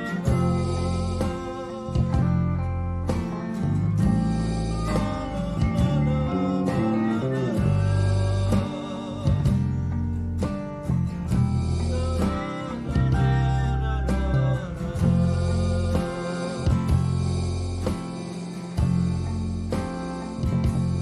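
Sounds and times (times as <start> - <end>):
man singing a ballad: 0.0 - 10.1, 11.5 - 17.8
small band with guitars and keyboard: 0.0 - 21.0.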